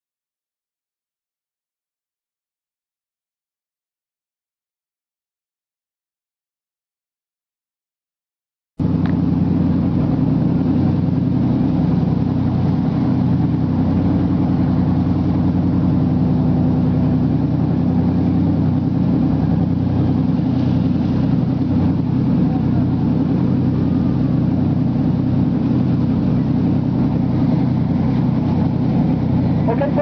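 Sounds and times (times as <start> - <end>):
boat engines droning: 8.8 - 30.0
rushing water from wake: 8.8 - 30.0.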